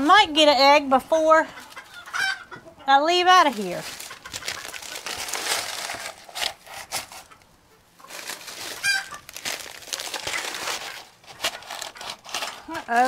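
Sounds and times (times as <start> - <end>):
rustling and crinkling pads: 3.2 - 13.0
chicken call: 8.8 - 9.2.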